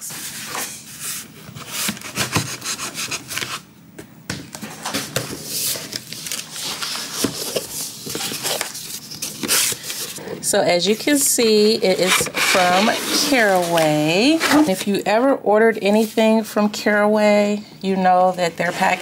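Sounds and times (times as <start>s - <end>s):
cardboard box scraping and rustling: 11.8s - 14.8s.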